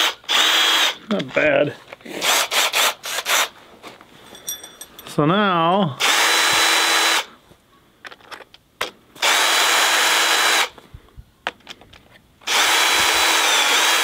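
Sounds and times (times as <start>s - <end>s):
cordless drill motor whining: 0.0s - 1.0s, 6.0s - 7.3s, 9.2s - 10.8s, 12.4s - 14.0s
handling clicks and knocks: 8.0s - 9.0s.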